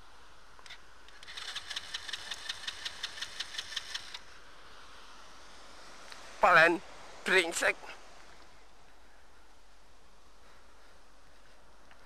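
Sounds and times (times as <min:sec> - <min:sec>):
engine cranking without catching: 0:01.1 - 0:04.2.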